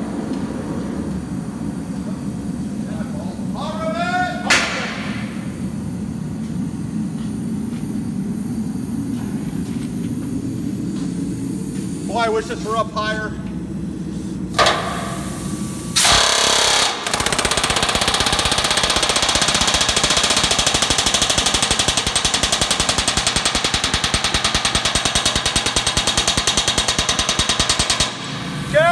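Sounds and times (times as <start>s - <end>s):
pneumatic rivet gun hammering: 14.5s - 15.2s, 16.0s - 28.3s.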